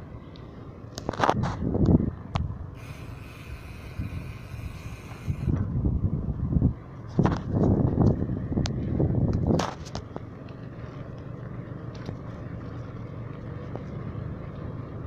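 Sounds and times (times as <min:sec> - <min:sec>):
bicycle rumble on concrete: 0:00.0 - 0:15.0
wind buffeting microphone: 0:01.2 - 0:09.9.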